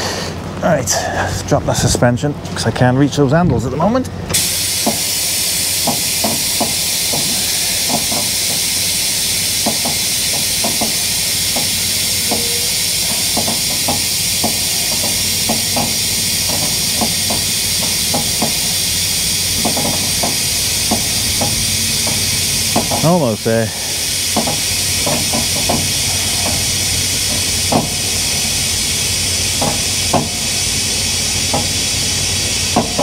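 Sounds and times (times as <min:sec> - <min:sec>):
air suspension hissing: 0:04.3 - 0:33.0.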